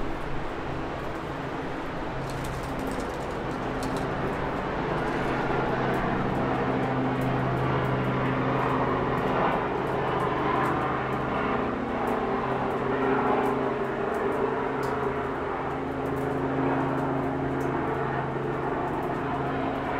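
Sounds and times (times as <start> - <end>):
distant traffic hum: 0.0 - 19.9.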